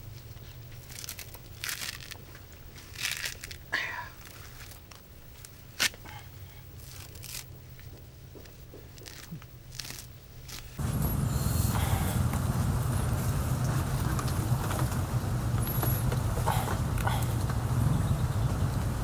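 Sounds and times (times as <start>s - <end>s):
coconut husk fibres tearing: 0.5s - 7.8s, 8.4s - 10.8s.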